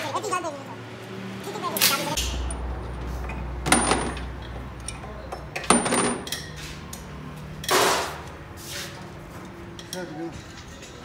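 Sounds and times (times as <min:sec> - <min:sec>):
metal tools clinking and knocking: 0:03.2 - 0:06.6.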